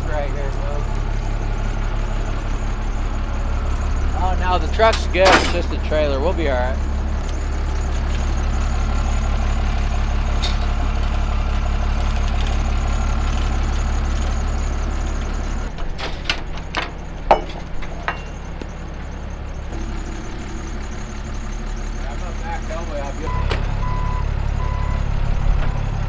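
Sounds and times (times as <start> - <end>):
diesel truck engine idling: 0.0 - 26.0
sharp metal clanks and knocks: 4.8 - 5.9, 15.7 - 18.7.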